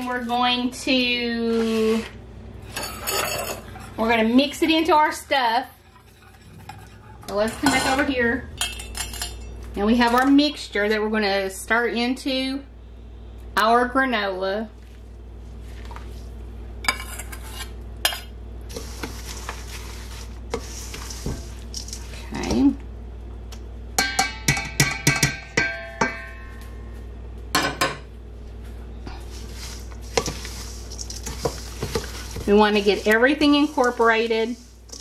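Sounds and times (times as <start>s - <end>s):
metal spoon scraping saucepan: 1.5s - 4.8s, 5.7s - 10.2s, 16.9s - 22.2s, 29.4s - 35.0s
mixture tossed in bowl: 18.7s - 22.4s, 29.2s - 35.0s.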